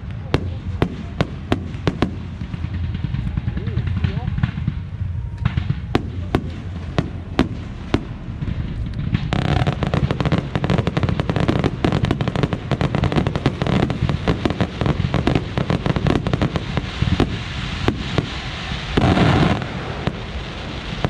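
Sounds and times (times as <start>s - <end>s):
fireworks bangs and crackling: 0.0s - 21.0s.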